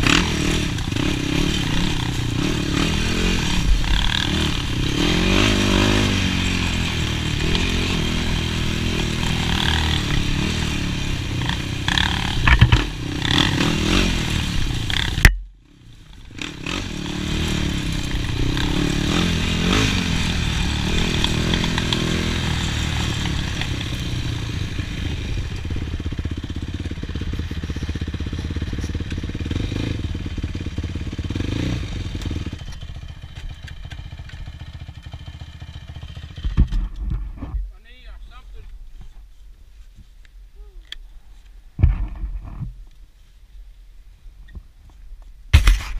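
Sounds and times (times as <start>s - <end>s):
quad engine revving: 0.0s - 36.6s.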